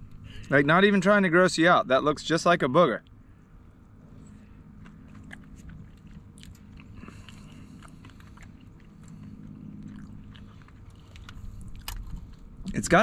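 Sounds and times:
person chewing close to microphone: 4.0s - 12.8s
wet mouth clicks and smacks: 4.8s - 12.4s.

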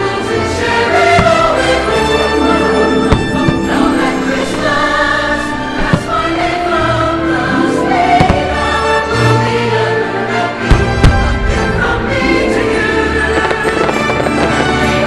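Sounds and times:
choir and orchestra music: 0.0s - 15.0s
fireworks bangs: 1.1s - 2.0s, 3.0s - 6.5s, 8.2s - 8.8s, 10.7s - 15.0s.

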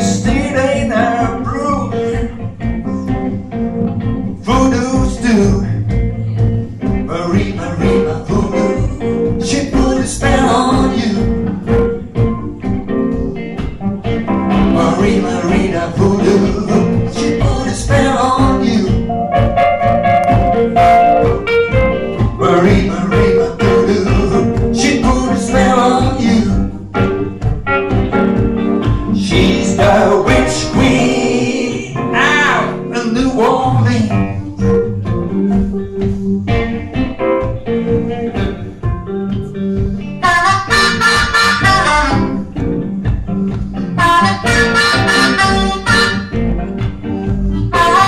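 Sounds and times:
person singing: 0.0s - 3.3s, 4.4s - 12.0s, 14.6s - 19.5s, 22.2s - 27.0s, 29.0s - 38.8s, 47.0s - 48.0s
electric guitar: 0.0s - 48.0s
piano: 0.0s - 48.0s.

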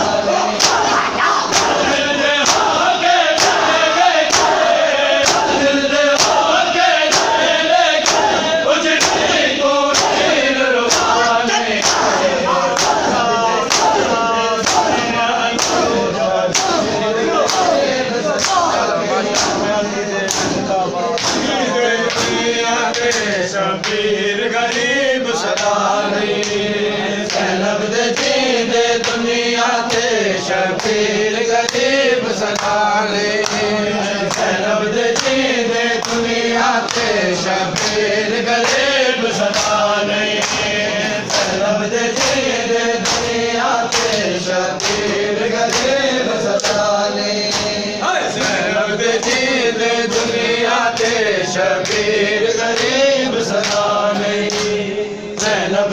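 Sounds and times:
men chanting in unison: 0.0s - 55.9s
chest slaps: 0.6s - 2.7s, 7.1s - 24.0s.

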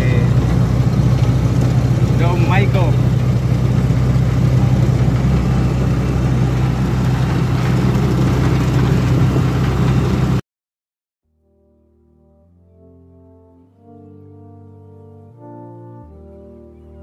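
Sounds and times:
motorcycle engine running: 0.0s - 10.4s
road and wind noise: 0.0s - 10.4s.

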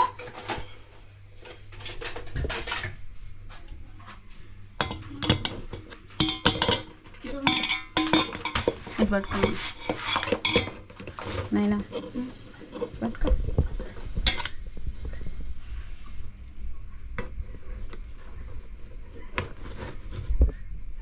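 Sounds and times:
metal tin clanking in pot: 4.8s - 10.8s, 14.2s - 14.6s.

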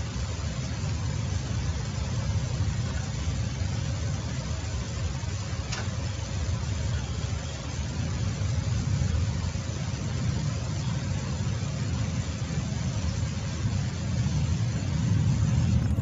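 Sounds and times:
hiss: 0.0s - 16.0s
faint click: 5.7s - 6.0s
low rumbling drone: 6.4s - 16.0s.

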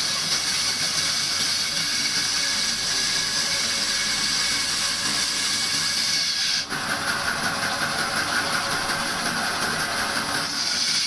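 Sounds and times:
band saw hissing rasp: 0.0s - 7.3s, 9.8s - 11.0s.

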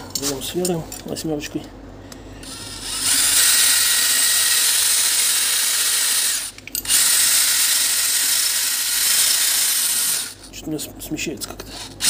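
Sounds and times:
cordless drill whining: 2.4s - 10.4s.

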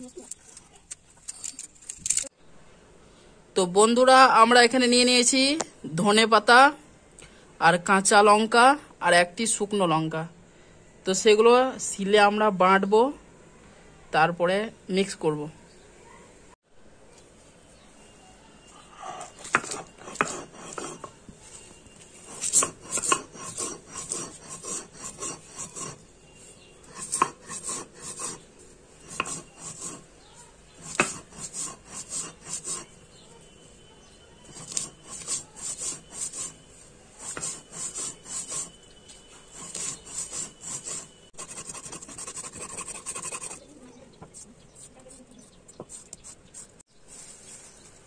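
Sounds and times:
stone roller scraping on stone slab: 19.4s - 21.2s, 22.1s - 28.4s, 29.0s - 30.1s, 34.4s - 36.6s, 37.2s - 38.8s, 39.4s - 41.2s.

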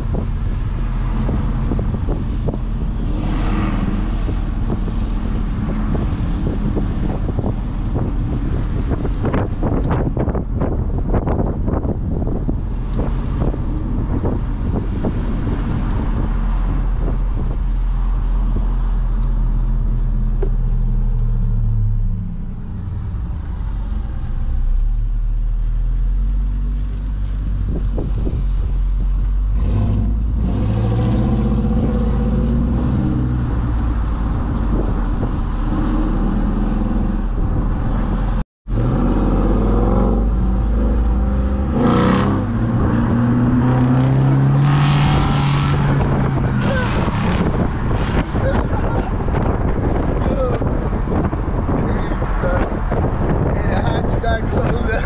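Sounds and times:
car engine drone: 0.0s - 55.0s
tyre noise: 41.3s - 52.7s.

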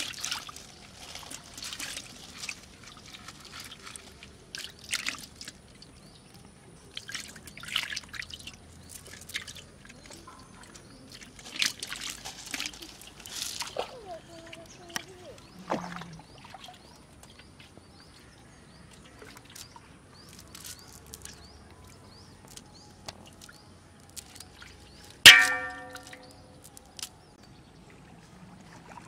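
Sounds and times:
water dripping and trickling: 0.0s - 29.0s
fish splashing in metal pot: 25.2s - 26.3s.

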